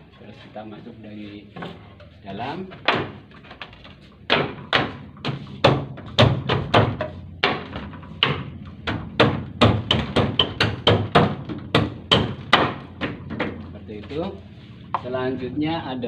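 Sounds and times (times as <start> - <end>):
hard knocks on pen section: 2.7 - 3.4, 4.2 - 13.7.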